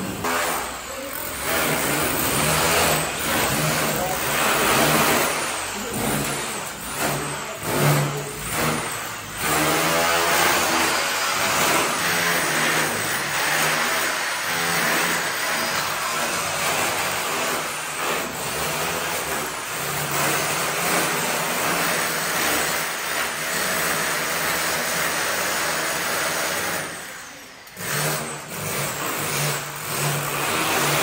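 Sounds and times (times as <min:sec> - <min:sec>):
electric grinder cutting wall: 0:00.0 - 0:31.0.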